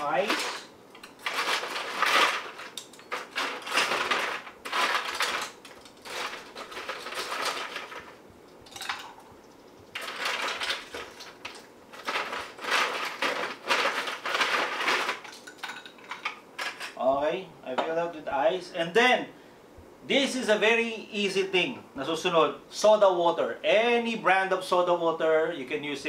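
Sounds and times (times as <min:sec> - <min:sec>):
ice cubes clattering into glass: 0:00.2 - 0:08.1, 0:08.7 - 0:09.2, 0:09.9 - 0:16.8.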